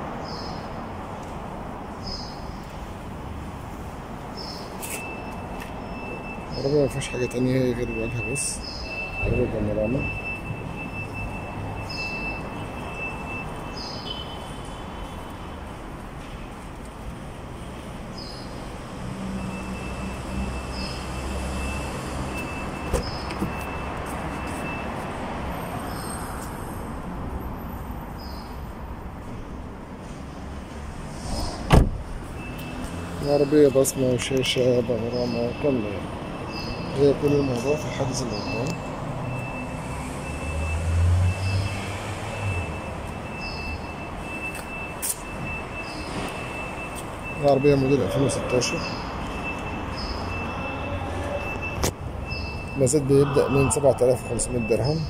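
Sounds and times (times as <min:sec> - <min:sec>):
car door latch clicks: 0:31.7 - 0:32.0.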